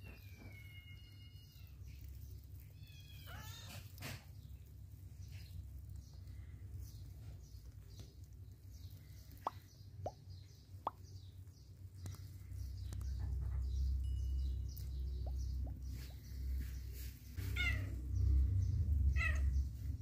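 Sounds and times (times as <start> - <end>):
faint low rumble: 4.4 - 20.0.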